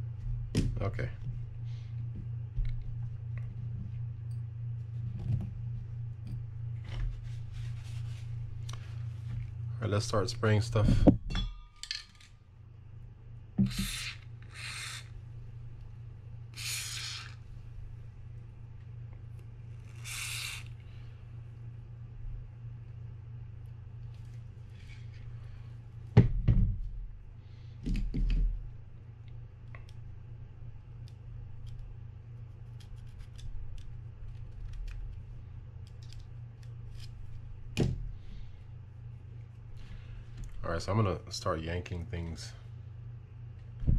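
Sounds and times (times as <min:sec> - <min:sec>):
low steady hum: 0:00.0 - 0:43.9
aerosol spray can hissing: 0:13.6 - 0:15.1, 0:16.5 - 0:17.4, 0:19.8 - 0:20.8.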